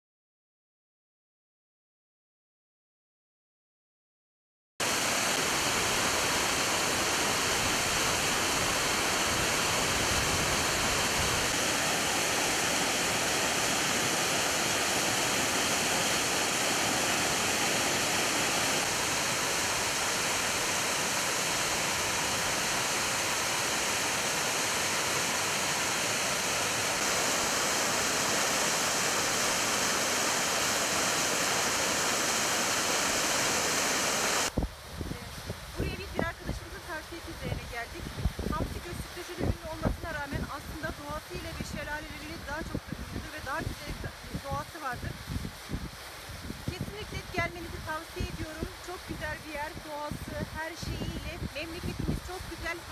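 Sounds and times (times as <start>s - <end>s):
waterfall rushing: 4.8s - 34.5s.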